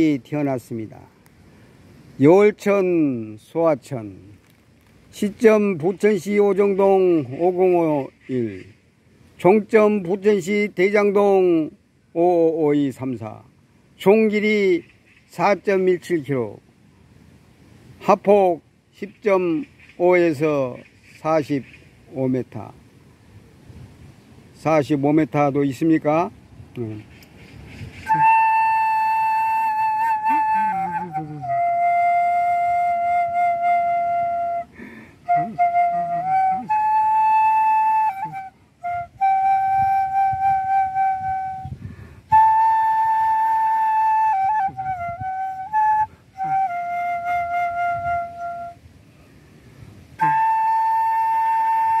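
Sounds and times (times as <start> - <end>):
bamboo flute melody: 0.0 - 1.0, 5.1 - 8.6, 9.4 - 16.6, 27.0 - 52.0.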